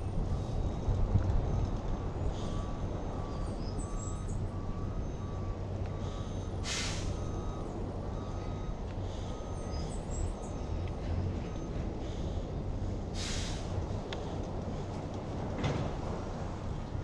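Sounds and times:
faint repeating beep: 0:00.5 - 0:11.9
short hiss: 0:13.2 - 0:13.7.

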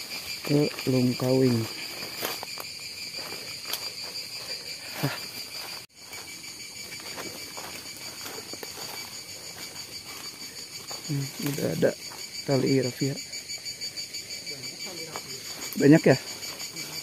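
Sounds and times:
footsteps in dry leaves: 0:00.0 - 0:12.4
insects chirring: 0:00.0 - 0:17.0.

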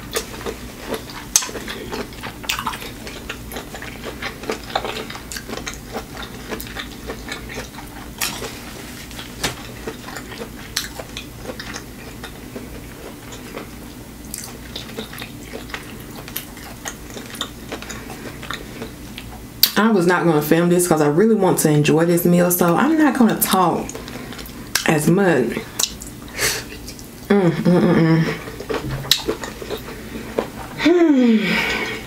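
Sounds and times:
chewing sounds: 0:00.0 - 0:19.8, 0:25.5 - 0:27.3, 0:28.2 - 0:30.8.

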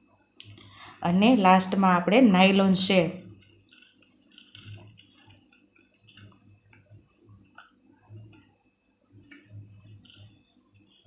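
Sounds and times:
low steady hum: 0:00.0 - 0:11.0
fried snack sprinkled on plate: 0:02.6 - 0:06.5, 0:08.2 - 0:11.0.

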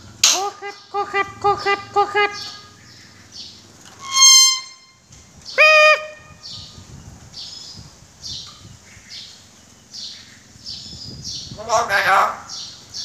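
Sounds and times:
bird high chirps: 0:00.2 - 0:13.0
bird low steady call: 0:00.3 - 0:03.3, 0:04.0 - 0:06.9
bird sharp high whistle: 0:04.0 - 0:04.9.

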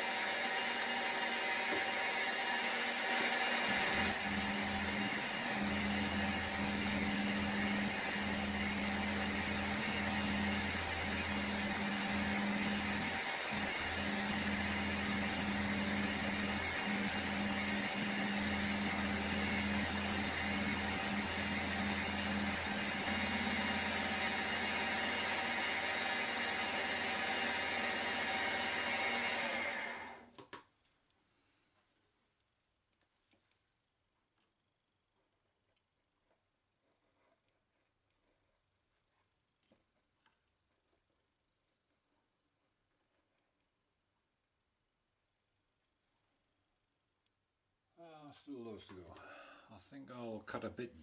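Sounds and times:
milling machine whirring: 0:00.0 - 0:30.3.

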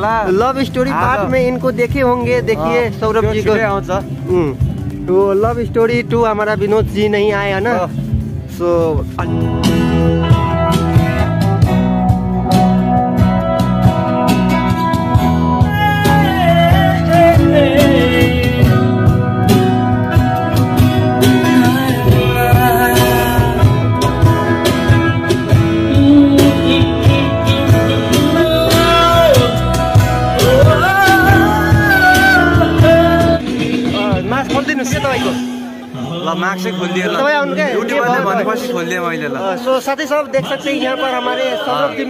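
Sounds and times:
live band through speakers: 0:00.0 - 0:42.0
person singing: 0:15.5 - 0:34.3.

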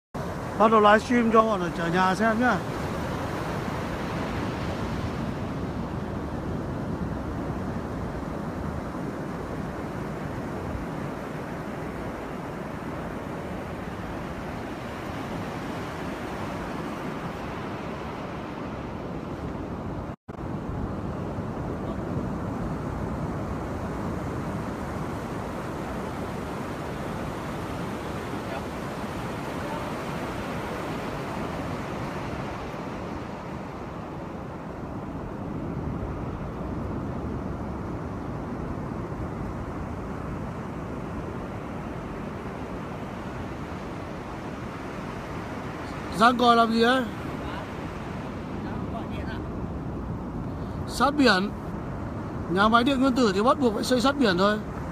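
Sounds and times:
sea surf rushing: 0:00.2 - 0:54.9
wind buffeting microphone: 0:00.2 - 0:54.9.

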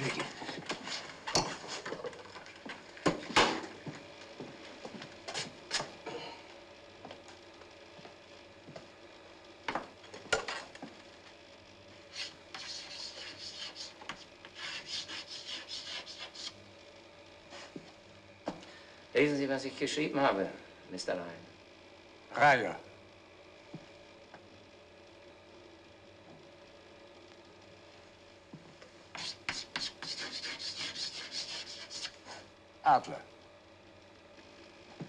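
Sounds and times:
chalk writing on blackboard: 0:12.1 - 0:16.6, 0:29.1 - 0:32.4.

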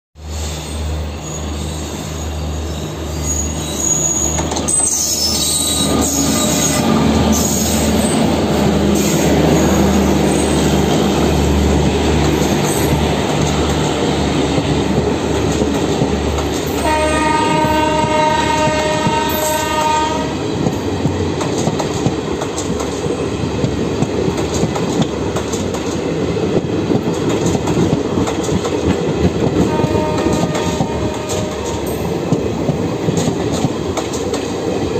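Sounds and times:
train wheels rumbling on track: 0:00.2 - 0:34.9
train horn: 0:05.7 - 0:07.7, 0:16.7 - 0:20.5, 0:29.6 - 0:32.0.

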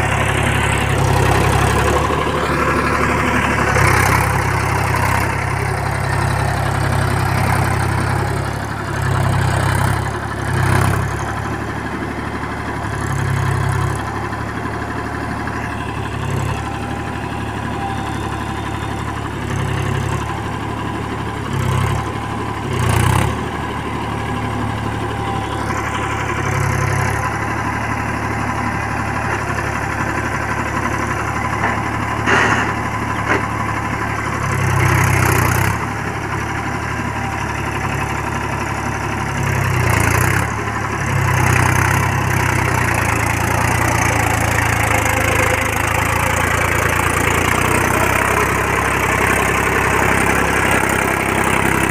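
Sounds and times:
tractor diesel engine running: 0:00.0 - 0:51.9.

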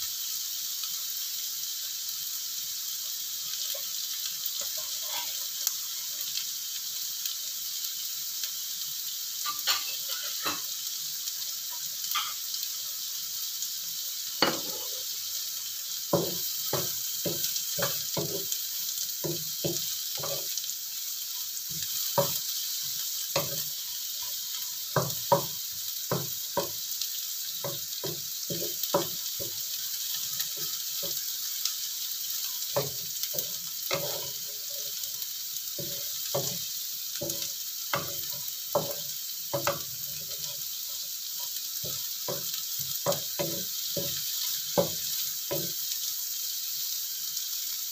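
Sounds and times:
oil sizzling in a wok: 0:00.0 - 0:47.9
wooden spatula scraping wok: 0:04.6 - 0:05.4, 0:32.7 - 0:35.1.

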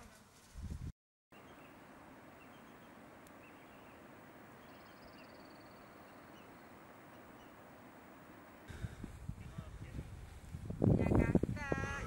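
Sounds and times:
outdoor ambience hiss: 0:00.0 - 0:12.0
bird chirps: 0:01.3 - 0:07.9
high bird trill: 0:01.4 - 0:08.7.

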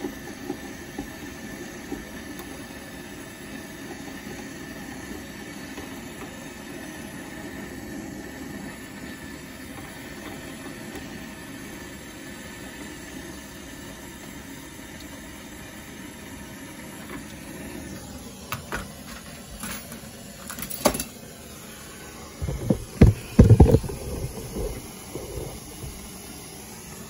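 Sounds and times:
torch flame hissing: 0:00.0 - 0:20.4, 0:21.1 - 0:27.0
low rumbles and knocks: 0:22.4 - 0:26.0.

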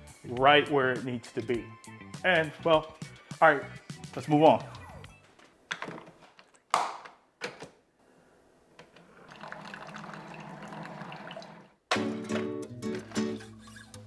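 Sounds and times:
coffee streaming into mug: 0:09.0 - 0:11.7.

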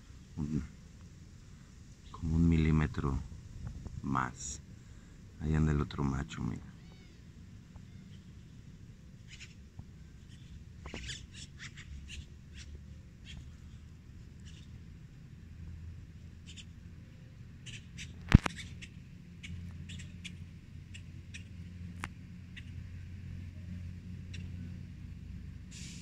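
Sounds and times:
steady low rumble: 0:00.0 - 0:25.7
small animals chirping: 0:07.8 - 0:08.6, 0:09.2 - 0:13.8, 0:14.4 - 0:14.8, 0:16.4 - 0:16.8, 0:17.6 - 0:21.6.

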